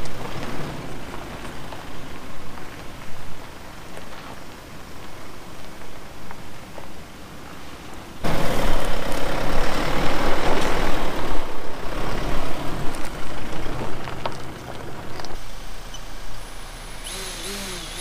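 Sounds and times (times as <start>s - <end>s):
loud rushing noise: 8.2s - 12.4s
diesel engine running under load: 8.3s - 18.0s.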